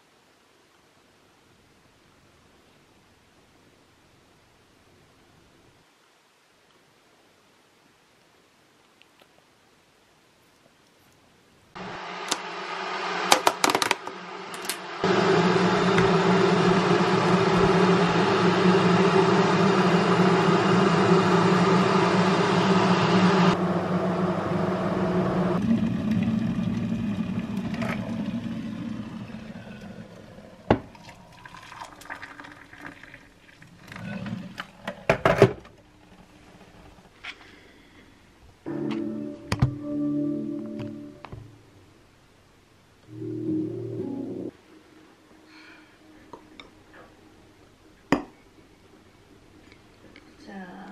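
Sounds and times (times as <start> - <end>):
microwave oven humming: 11.8 - 33.1.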